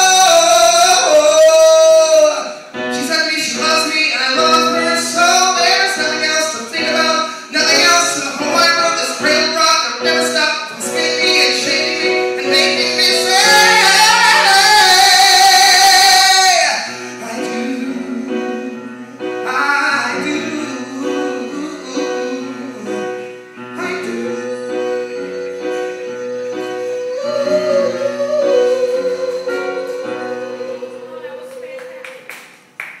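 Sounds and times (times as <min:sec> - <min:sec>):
man singing show tune: 0:00.0 - 0:31.2
instrumental accompaniment: 0:00.0 - 0:33.0.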